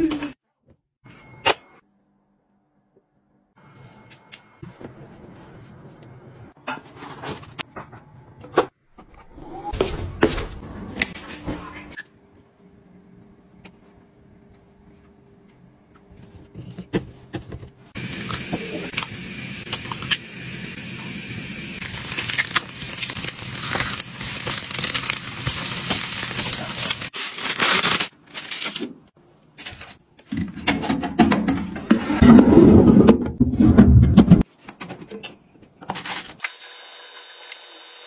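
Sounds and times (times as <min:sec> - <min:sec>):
eggs sizzling in a pan: 0:18.0 - 0:27.1.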